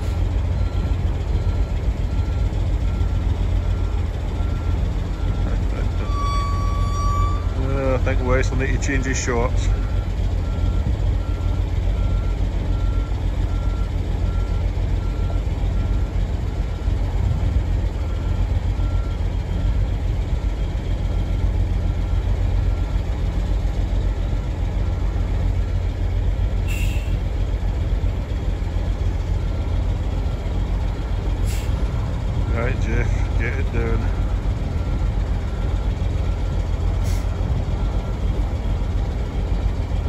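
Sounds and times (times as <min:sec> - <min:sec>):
reversing alarm beeping: 0:00.0 - 0:17.0, 0:17.9 - 0:19.8, 0:29.3 - 0:40.0
truck diesel engine running: 0:00.0 - 0:40.0.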